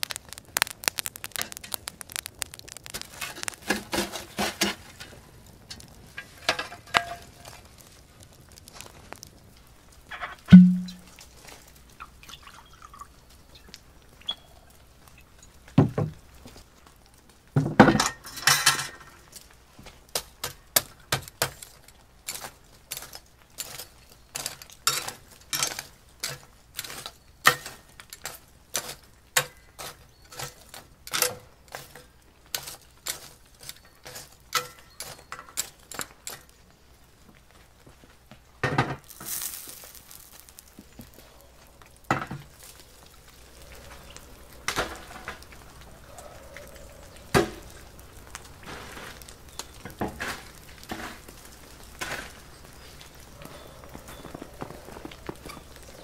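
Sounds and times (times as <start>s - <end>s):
metal scoop clinking coals: 0.1s - 8.0s, 10.0s - 13.0s, 17.9s - 19.5s, 20.2s - 36.7s, 39.0s - 56.0s
cast iron grate clanking: 2.8s - 7.6s, 10.1s - 11.2s, 17.6s - 19.2s, 21.4s - 32.0s, 32.6s - 36.5s.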